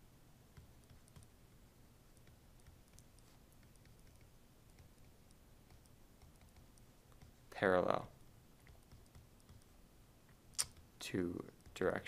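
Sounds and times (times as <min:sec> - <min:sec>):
stylus tapping on tablet screen: 0:02.1 - 0:07.4, 0:08.6 - 0:09.7.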